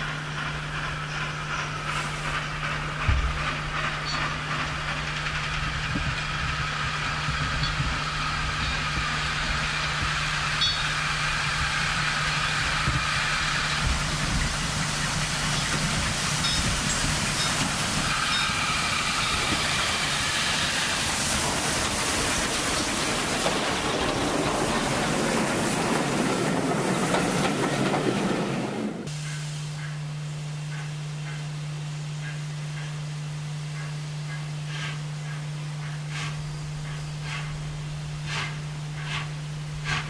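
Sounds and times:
train coaches rolling by: 0:00.0 - 0:31.6, 0:33.7 - 0:40.0
steam locomotive passing: 0:00.0 - 0:40.0.

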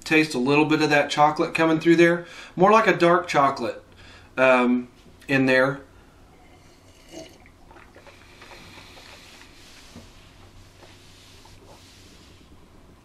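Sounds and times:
man sipping coffee: 0:06.3 - 0:12.6
mouth and breathing noises: 0:06.4 - 0:12.6.

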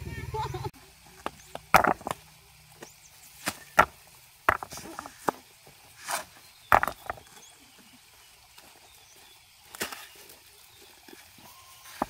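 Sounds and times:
hand tools knocking stones: 0:01.2 - 0:02.3, 0:03.4 - 0:07.5.

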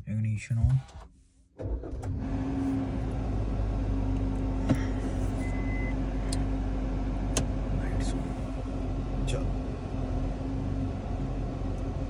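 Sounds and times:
car engine idling: 0:01.6 - 0:12.0
short high beep: 0:05.4 - 0:06.0.

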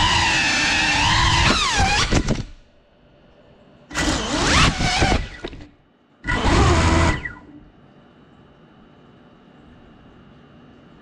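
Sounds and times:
drone motors whining: 0:00.0 - 0:02.6, 0:03.9 - 0:07.7.

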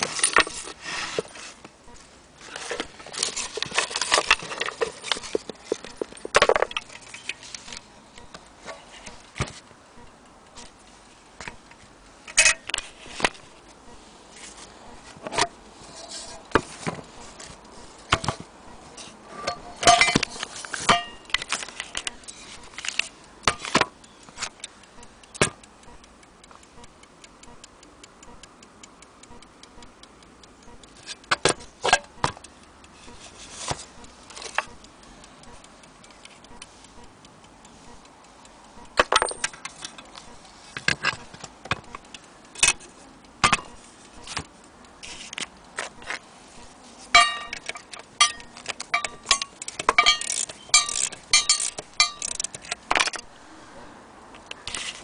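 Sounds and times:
metallic clicks and clinks: 0:00.0 - 0:01.7, 0:02.4 - 0:09.4, 0:14.4 - 0:25.7, 0:38.9 - 0:46.3, 0:46.9 - 0:53.3
faint clock ticking: 0:00.0 - 0:55.0.

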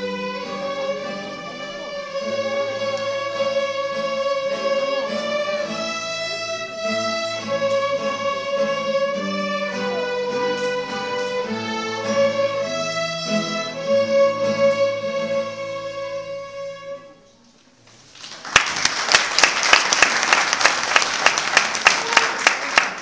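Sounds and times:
string orchestra playing chords: 0:00.0 - 0:17.4
audience applause: 0:18.1 - 0:23.0.

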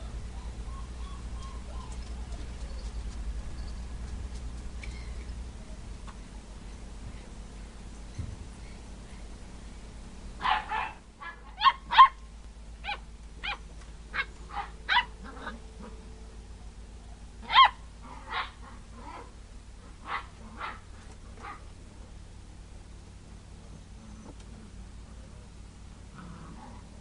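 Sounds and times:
puppy barking and yipping: 0:00.0 - 0:02.9, 0:10.4 - 0:12.2, 0:12.8 - 0:16.0, 0:17.4 - 0:19.3, 0:20.0 - 0:20.8.

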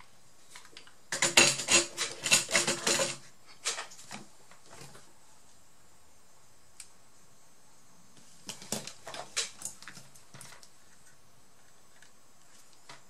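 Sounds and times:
clicks and scrapes of hand tools: 0:00.6 - 0:04.1.

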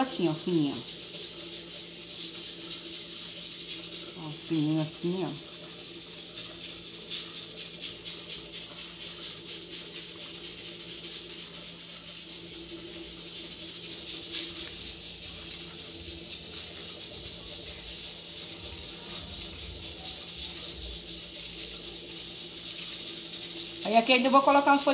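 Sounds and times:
knife slicing pepper: 0:12.7 - 0:23.9.

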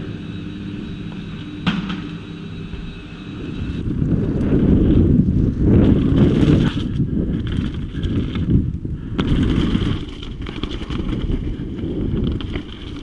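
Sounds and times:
bike rattling over bumps: 0:00.0 - 0:13.0
tyres rumbling over dirt: 0:00.0 - 0:13.0
wind buffeting microphone: 0:02.7 - 0:13.0.

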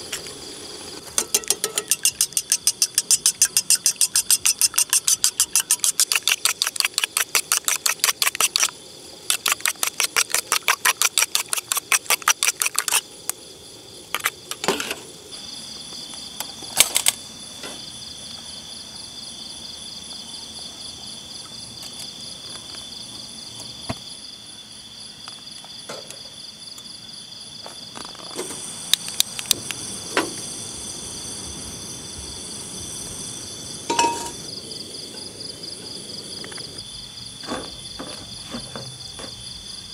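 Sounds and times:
night insects chorus: 0:00.0 - 0:39.9
camp cookware knocks and clinks: 0:01.0 - 0:06.4, 0:14.5 - 0:15.0, 0:33.9 - 0:34.4
fork beating egg in metal bowl: 0:01.2 - 0:08.7, 0:09.3 - 0:13.0.

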